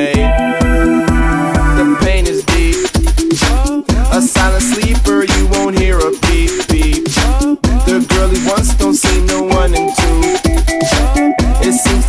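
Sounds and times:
electronic dance music: 0.0s - 3.4s, 6.9s - 12.0s.

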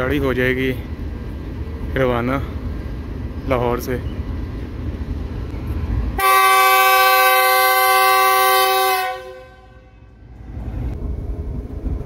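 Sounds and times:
locomotive air horn blast: 6.2s - 10.2s.

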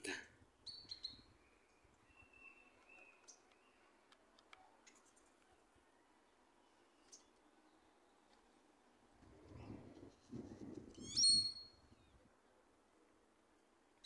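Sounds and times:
faint high chirps: 0.6s - 3.9s.

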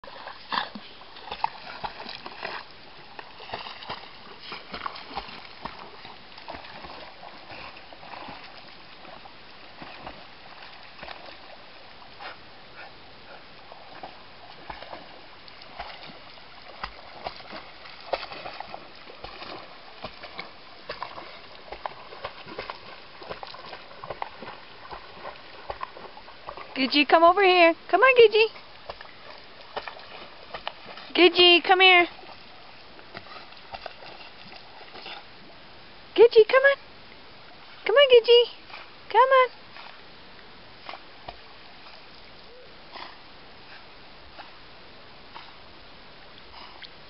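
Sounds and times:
dog splashing in water: 0.0s - 11.6s, 13.7s - 27.1s, 28.7s - 35.3s.

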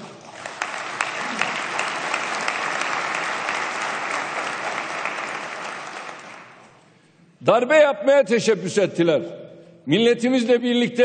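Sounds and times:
audience applause: 0.0s - 6.8s.

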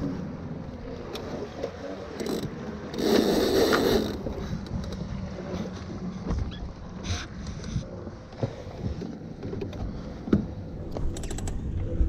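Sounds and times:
water along boat hull: 0.0s - 12.0s
wind on microphone: 9.8s - 12.0s.

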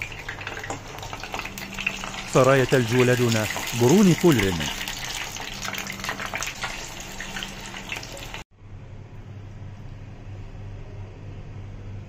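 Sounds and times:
oil sizzling and crackling: 0.0s - 8.5s
steady low hum: 8.5s - 12.0s.

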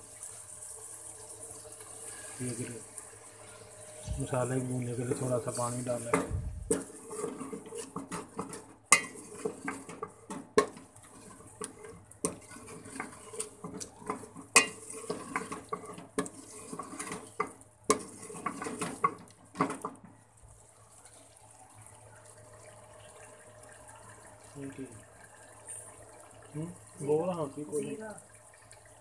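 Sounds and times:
spoon scraping metal pot: 5.0s - 19.8s.

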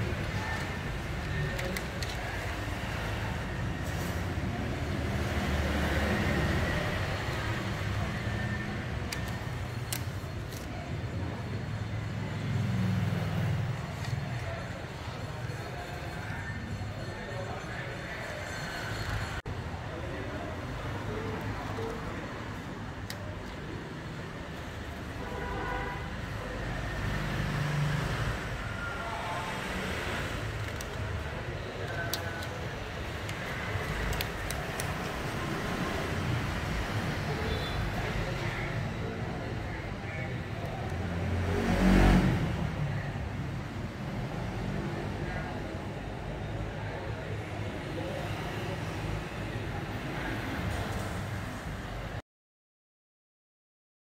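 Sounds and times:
background traffic noise: 0.0s - 52.2s
vehicle engine: 26.5s - 46.3s.

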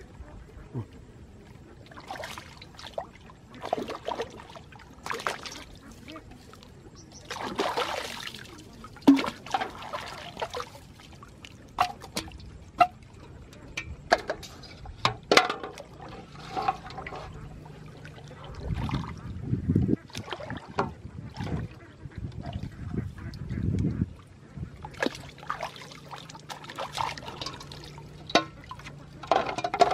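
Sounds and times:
pond water splashing and trickling: 0.0s - 29.9s
wading through water: 0.0s - 29.9s
short splashes and knocks on metal pot: 7.2s - 10.8s, 11.8s - 13.1s, 13.8s - 19.2s, 24.8s - 29.9s.

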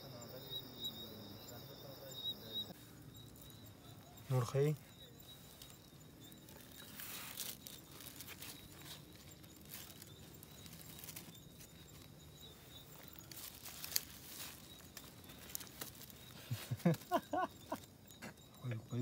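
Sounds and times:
plastic bags crinkling: 6.5s - 12.1s, 12.9s - 17.1s.

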